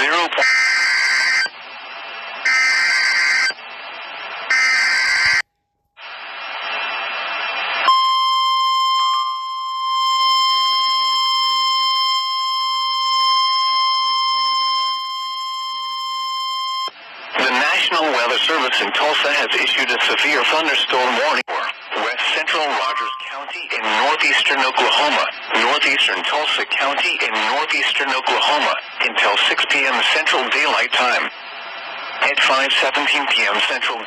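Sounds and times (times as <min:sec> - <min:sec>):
screeching digital header tones: 0:00.4 - 0:01.5, 0:02.5 - 0:03.6, 0:04.5 - 0:05.4, 0:22.5 - 0:23.6
steady warning alarm tone: 0:02.5 - 0:03.6, 0:04.5 - 0:05.5, 0:07.9 - 0:16.9.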